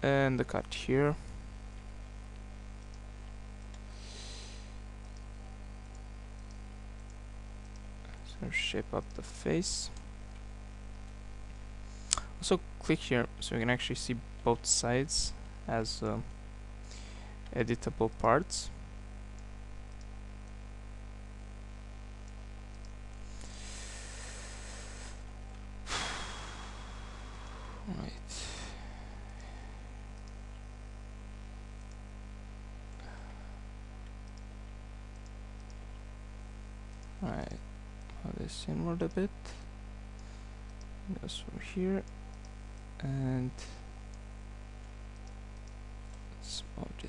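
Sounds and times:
electrical mains hum: 0.0 - 47.0
soft higher hiss: 0.0 - 47.0
faint clicks: 5.0 - 8.4, 29.2 - 30.7, 31.7 - 32.1, 33.9 - 36.0, 36.9 - 37.2, 42.0 - 46.4
faint hiss: 23.2 - 30.0.

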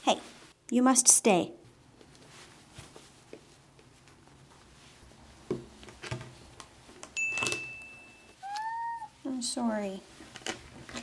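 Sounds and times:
comb rustling through cat fur: 1.9 - 8.4
thin steady high tone: 7.2 - 9.1.

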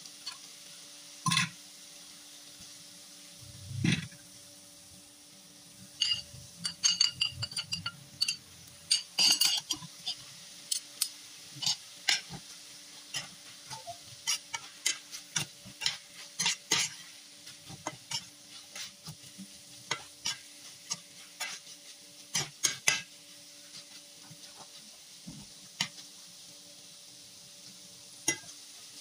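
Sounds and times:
food sizzling: 0.0 - 29.0
utensil scraping a pan: 6.0 - 12.4, 13.0 - 24.8.

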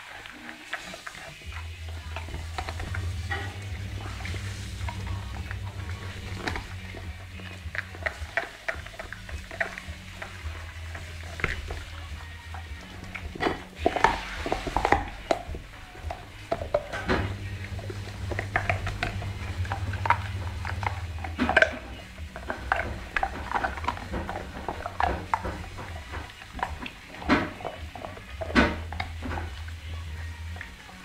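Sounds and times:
dog crunching a bone: 0.0 - 31.0
low steady hum: 0.1 - 31.0.

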